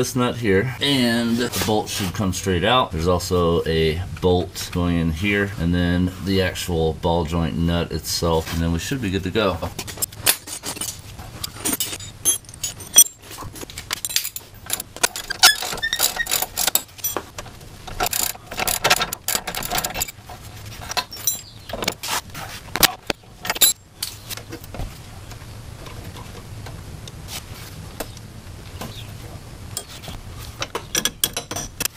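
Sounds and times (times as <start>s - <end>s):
hand tools clinking on metal: 9.9s - 17.3s, 20.8s - 22.0s.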